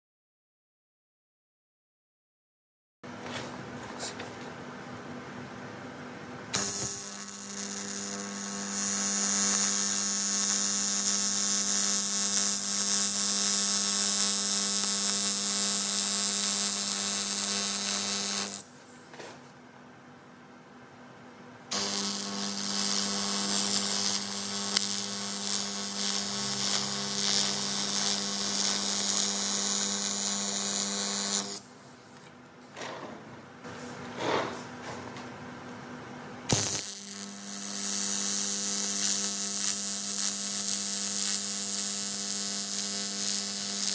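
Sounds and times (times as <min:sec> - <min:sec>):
welding arc buzzing: 0:06.5 - 0:19.2, 0:21.7 - 0:31.8, 0:36.5 - 0:43.9.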